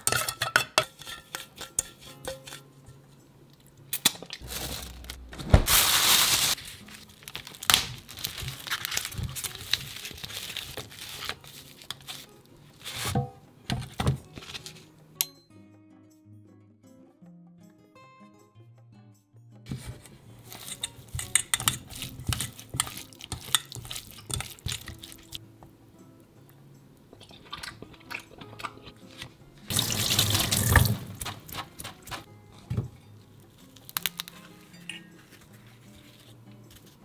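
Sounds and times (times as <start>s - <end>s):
soft background music: 0.0s - 37.0s
wet squishing of meat in metal bowl: 20.5s - 25.4s, 27.2s - 32.3s.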